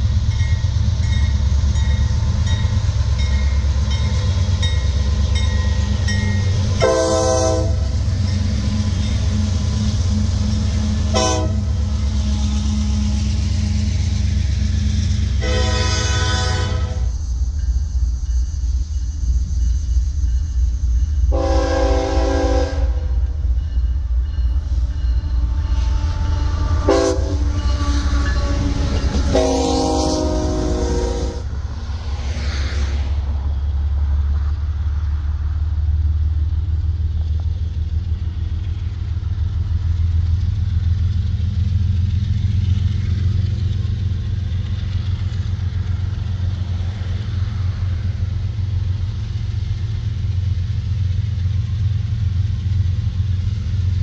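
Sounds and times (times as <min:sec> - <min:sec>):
locomotive air horn blasts: 0:06.8 - 0:08.0, 0:10.5 - 0:13.0, 0:15.4 - 0:17.1, 0:21.3 - 0:23.2, 0:25.4 - 0:31.5.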